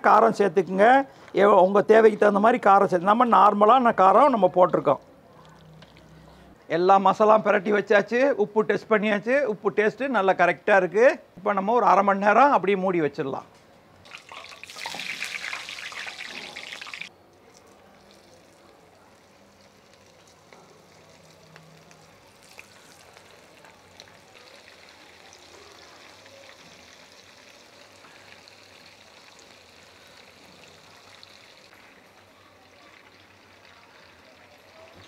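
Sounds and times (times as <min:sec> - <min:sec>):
oil popping and crackling: 0:05.3 - 0:06.3, 0:14.0 - 0:35.0
deep-frying sizzle: 0:14.0 - 0:17.1, 0:17.9 - 0:35.0.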